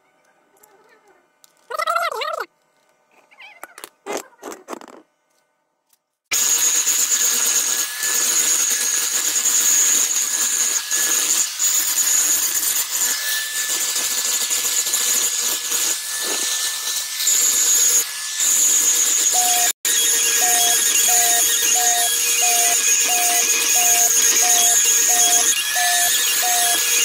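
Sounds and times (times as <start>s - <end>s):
angle grinder grinding metal: 6.3s - 27.0s.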